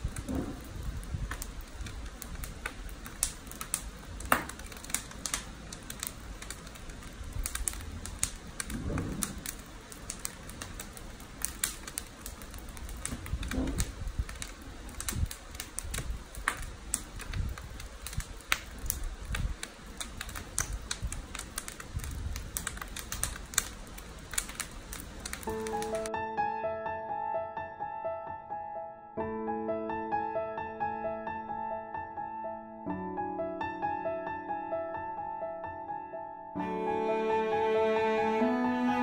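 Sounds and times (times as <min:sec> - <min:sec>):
wood fire crackling: 0:00.0 - 0:26.6, 0:36.6 - 0:39.0.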